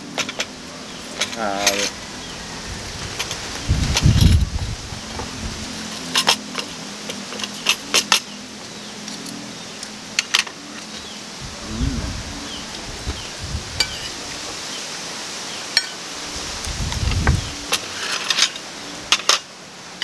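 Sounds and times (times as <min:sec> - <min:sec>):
spoons tapping and scraping: 0:00.0 - 0:00.5, 0:05.8 - 0:08.4
cutlery clinking on plates: 0:07.3 - 0:08.3.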